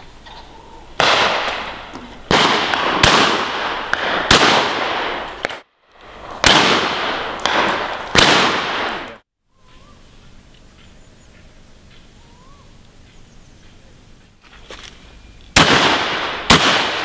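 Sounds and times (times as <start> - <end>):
shotgun shots echoing: 1.0 - 5.6, 6.4 - 9.2, 15.6 - 17.0.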